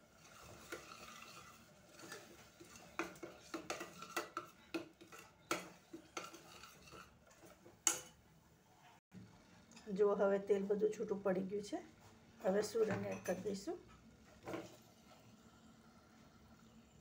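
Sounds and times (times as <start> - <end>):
spoon stirring thick gravy: 0.0 - 8.2.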